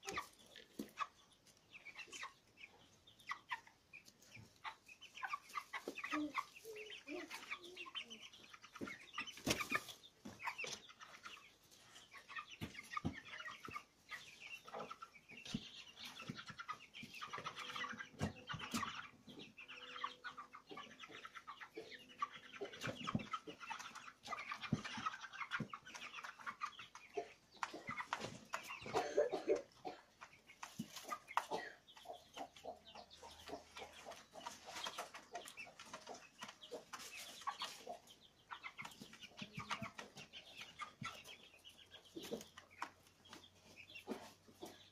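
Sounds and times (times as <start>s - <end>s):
chicks cheeping and clucking: 0.0s - 44.9s.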